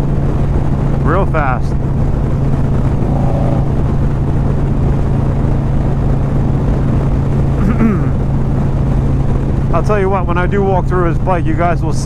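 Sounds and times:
motorcycle engine cruising: 0:01.6 - 0:06.9
wind rushing: 0:01.8 - 0:06.4.

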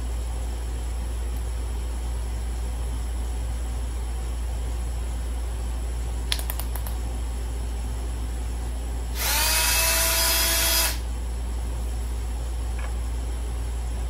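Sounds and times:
steady low hum: 0:00.0 - 0:14.0
cordless drill motor whine: 0:09.1 - 0:11.1
drill clicks: 0:09.2 - 0:11.0.

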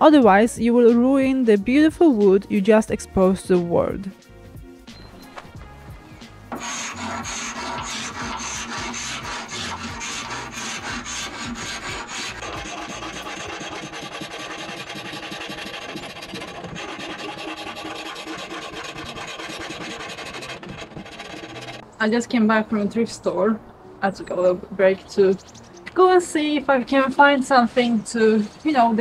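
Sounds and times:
scraper scraping varnish off wood: 0:06.5 - 0:21.8.

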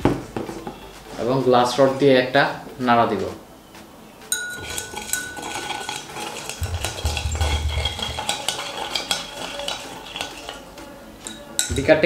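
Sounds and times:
glass rod clinking in beaker: 0:04.3 - 0:10.6, 0:11.2 - 0:12.0.

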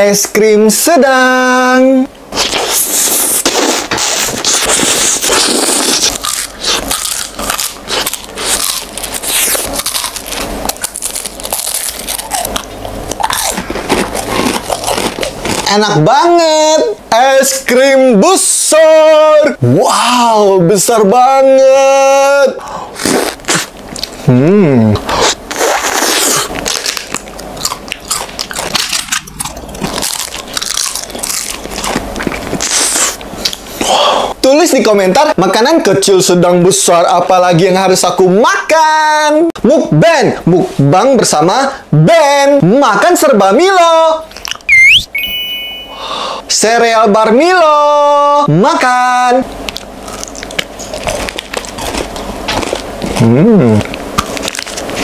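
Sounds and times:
crunching ice cream cone: 0:02.4 - 0:16.0, 0:25.1 - 0:33.6, 0:49.7 - 0:55.0.

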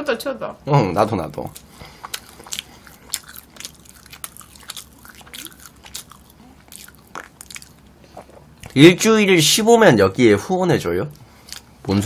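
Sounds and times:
chewing mouth clicks and smacks: 0:01.5 - 0:08.8.

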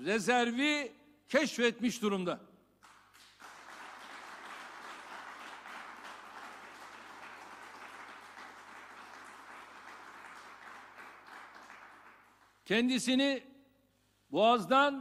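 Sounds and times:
audience applauding: 0:02.8 - 0:12.6.

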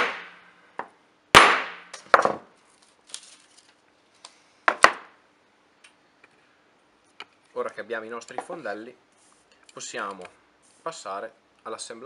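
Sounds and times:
hammer striking metal punch: 0:00.0 - 0:00.4.

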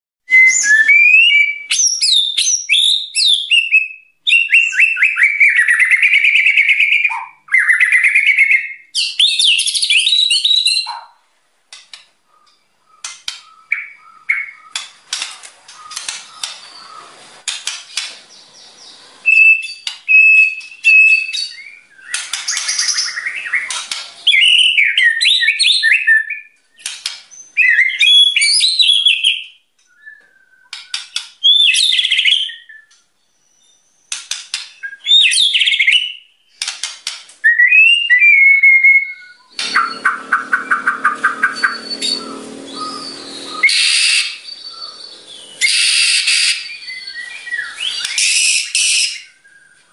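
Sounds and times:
bird singing whistled phrases: 0:00.3 - 0:11.0, 0:19.2 - 0:33.9, 0:34.8 - 0:36.2, 0:37.4 - 0:49.8
soft bird notes and clicks: 0:11.7 - 0:18.4, 0:26.7 - 0:27.4, 0:29.8 - 0:31.4, 0:32.7 - 0:33.2, 0:39.4 - 0:43.8.

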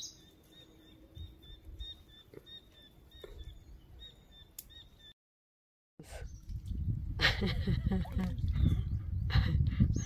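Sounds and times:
high bird chirps: 0:00.0 - 0:05.2.

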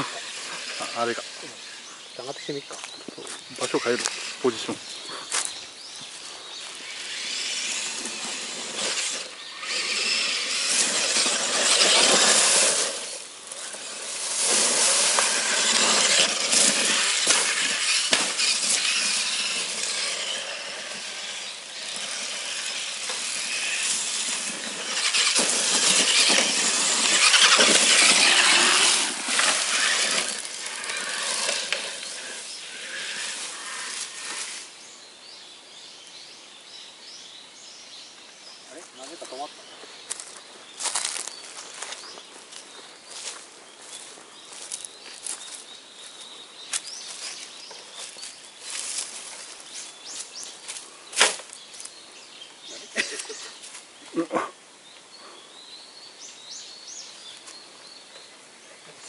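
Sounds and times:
electric motor whine: 0:00.0 - 0:02.8, 0:03.5 - 0:05.5, 0:06.1 - 0:34.8.

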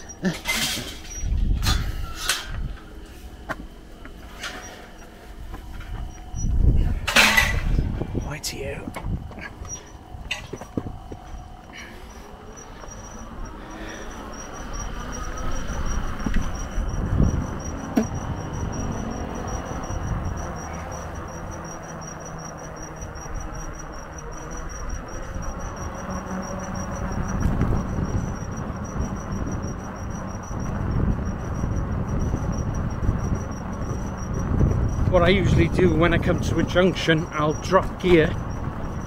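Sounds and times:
wind on microphone: 0:00.0 - 0:03.0, 0:05.4 - 0:11.8, 0:12.9 - 0:21.7, 0:22.7 - 0:39.0
high-pitched pulsing whine: 0:00.0 - 0:39.0
sharp knocks: 0:17.9 - 0:18.2.

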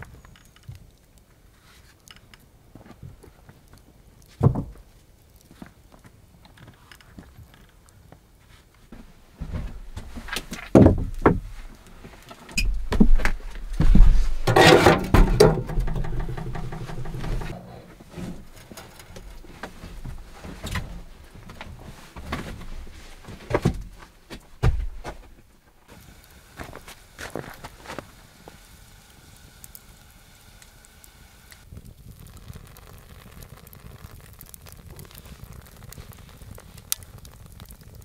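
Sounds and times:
metal scraping rattle: 0:13.7 - 0:19.7
metal stove clanks and knocks: 0:14.4 - 0:17.6.

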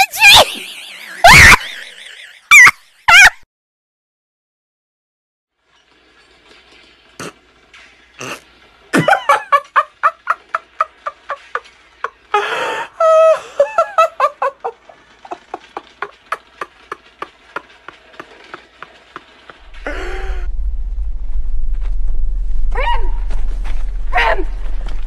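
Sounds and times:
man's stifled laughter: 0:13.0 - 0:18.8.

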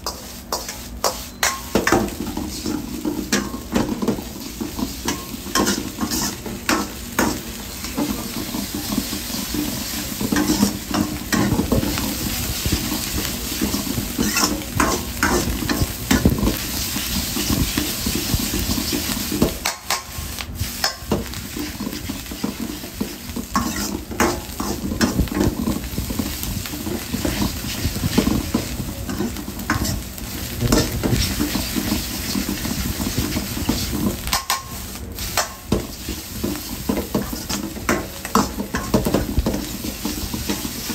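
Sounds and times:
noodles sizzling in a wok: 0:00.0 - 0:40.9
metal ladle scraping a wok: 0:05.1 - 0:07.4, 0:23.4 - 0:25.4.

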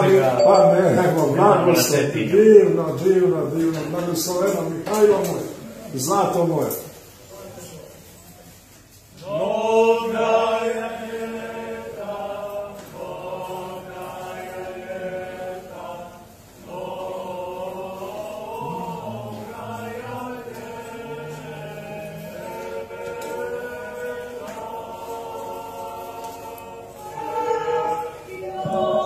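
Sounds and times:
congregation singing a hymn: 0:00.0 - 0:07.0, 0:09.1 - 0:29.0.

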